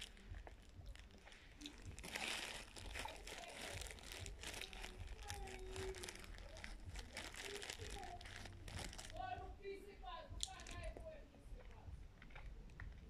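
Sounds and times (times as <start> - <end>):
plastic bag of powder crinkling: 0.0 - 9.4, 10.4 - 11.0.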